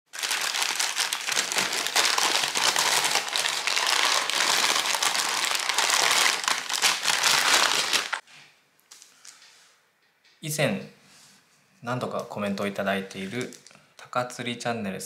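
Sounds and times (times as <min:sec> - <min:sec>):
paper bag crinkling: 0:00.1 - 0:08.2.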